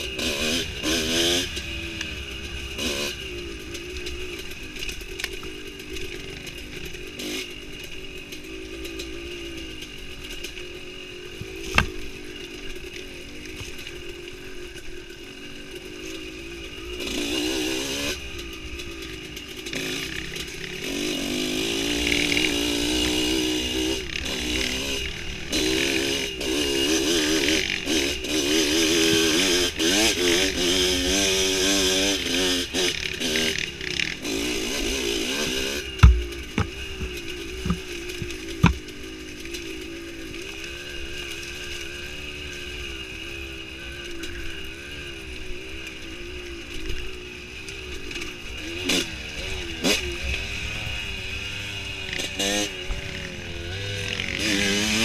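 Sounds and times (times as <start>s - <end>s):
dirt bike engine revving: 0.0s - 55.0s
sharp thumps: 36.0s - 38.8s.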